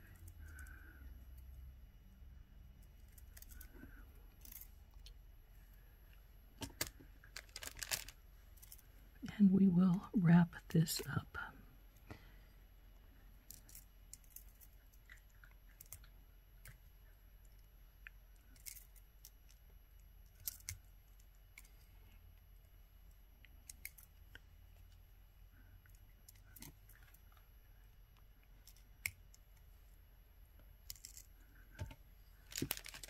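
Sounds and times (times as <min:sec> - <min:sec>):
jewelry pliers and wire clicking: 0:02.8 - 0:05.2, 0:23.4 - 0:24.3.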